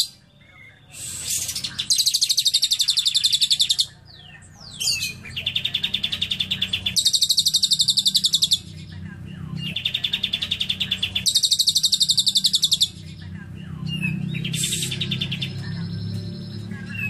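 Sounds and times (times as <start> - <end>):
bird rapid high trills: 0.9 - 4.0, 4.9 - 8.6, 9.7 - 13.0, 14.0 - 15.9.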